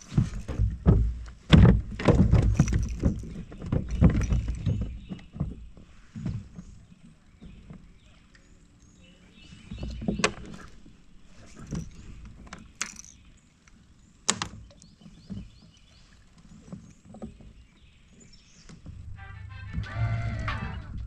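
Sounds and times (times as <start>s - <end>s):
fishing tackle knocks and clicks: 0.0s - 5.6s, 11.5s - 15.6s.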